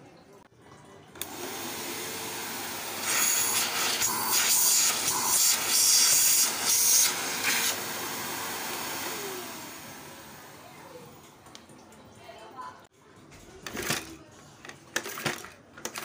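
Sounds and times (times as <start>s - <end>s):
vacuum cleaner running: 1.2s - 11.2s.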